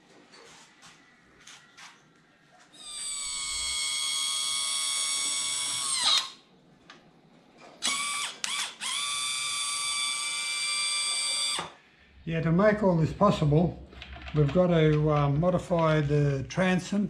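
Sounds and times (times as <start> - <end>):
electric hydraulic pump whining: 2.8 - 6.4.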